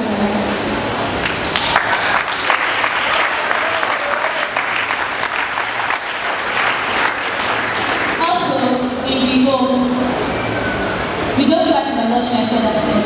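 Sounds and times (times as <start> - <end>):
crowd applauding: 1.2 - 8.4.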